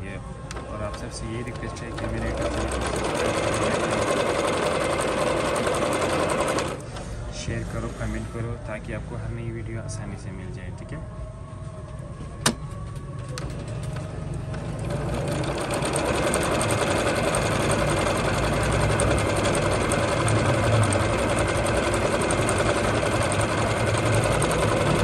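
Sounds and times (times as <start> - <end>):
sewing machine stitching: 0.5 - 6.8, 13.4 - 25.0.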